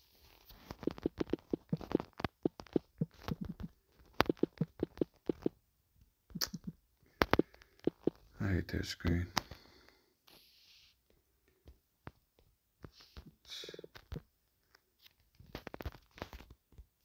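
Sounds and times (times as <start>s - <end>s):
finger tapping touchscreen keyboard: 0.7s - 5.5s, 6.4s - 8.2s.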